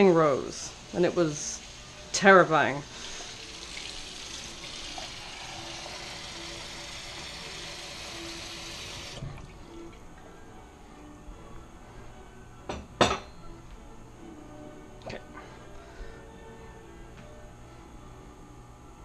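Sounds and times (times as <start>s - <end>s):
tap water running into cup: 2.9s - 10.0s.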